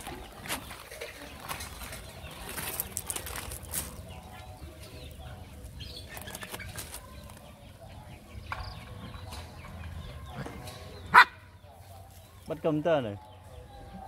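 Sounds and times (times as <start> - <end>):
puppies scrabbling in sand: 0.0 - 7.6.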